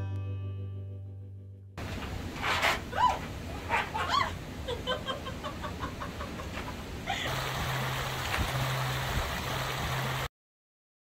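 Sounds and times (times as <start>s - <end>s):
low steady hum: 0.0s - 10.3s
creek running over rocks: 7.3s - 10.3s.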